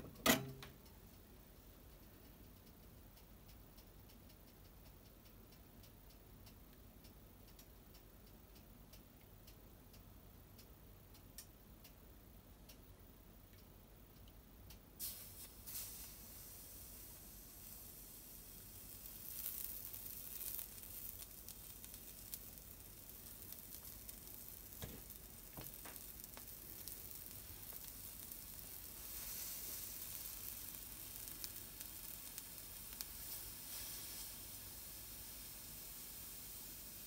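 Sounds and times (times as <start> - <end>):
sauce sizzling on a grill: 15.0 - 37.0.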